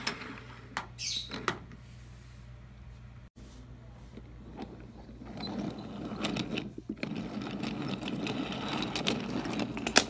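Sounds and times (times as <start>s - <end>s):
toy train rattling on wooden track: 4.6s - 10.0s.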